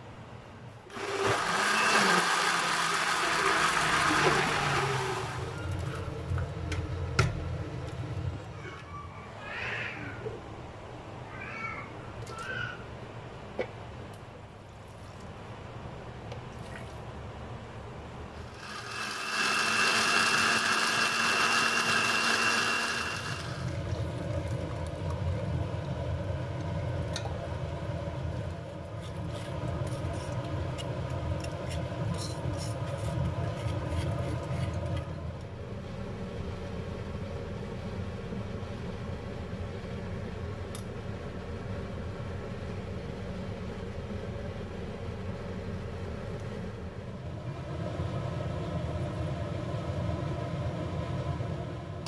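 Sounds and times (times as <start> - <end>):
electric blender whine: 0.9 - 5.8, 18.4 - 24.4.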